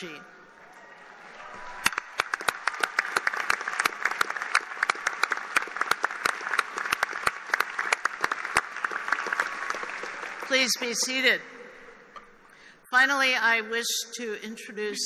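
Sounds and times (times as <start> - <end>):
large crowd applauding: 0.7 - 11.2
sharp single claps: 1.8 - 10.5.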